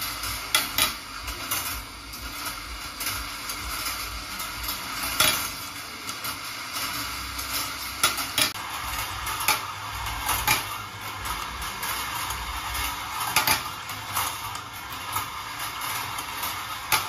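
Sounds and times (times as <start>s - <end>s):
glass marbles rolling on wire: 0.0s - 17.0s
marbles clacking: 0.0s - 17.0s.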